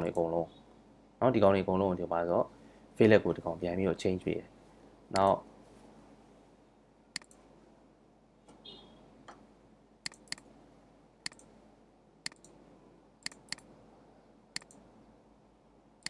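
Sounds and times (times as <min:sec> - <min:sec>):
mouse buttons clicking: 0:07.2 - 0:07.4, 0:10.0 - 0:10.5, 0:11.2 - 0:11.5, 0:12.2 - 0:12.6, 0:13.2 - 0:13.7, 0:14.6 - 0:14.8.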